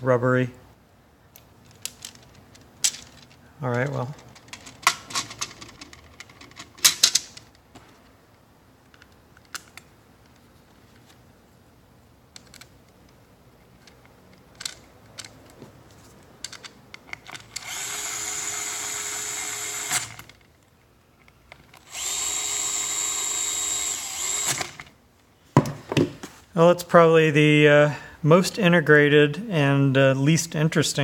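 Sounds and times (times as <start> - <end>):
electric screwdriver whining: 17.5 - 20.3, 21.8 - 24.9.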